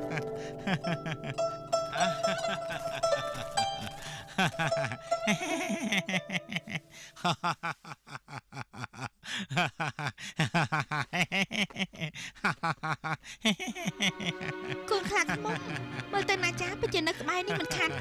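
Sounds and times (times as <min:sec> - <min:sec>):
cartoon character laughing: 0:00.0 - 0:03.6, 0:04.3 - 0:09.1, 0:09.7 - 0:18.0
plucked zither music: 0:00.0 - 0:06.6, 0:14.2 - 0:18.0.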